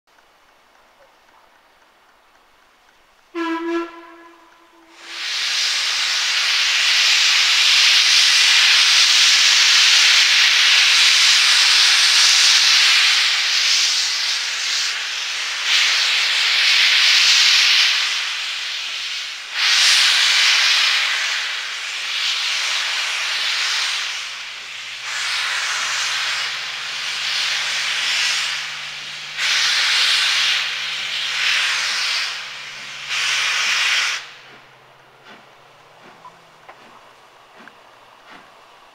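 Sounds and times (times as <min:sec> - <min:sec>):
steam locomotive whistle: 0:03.3 - 0:06.6
hiss of steam: 0:03.3 - 0:38.9.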